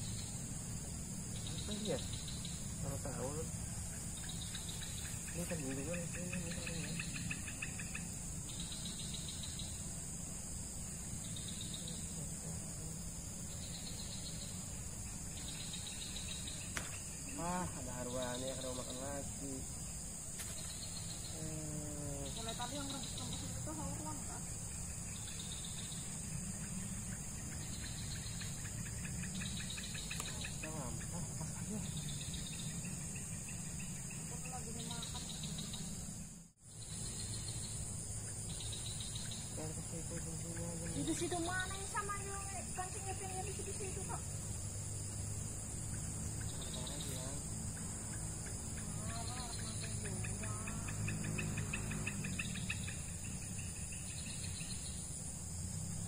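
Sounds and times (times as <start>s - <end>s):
insects chirping rapidly: 0.0s - 56.0s
insects droning: 0.0s - 56.0s.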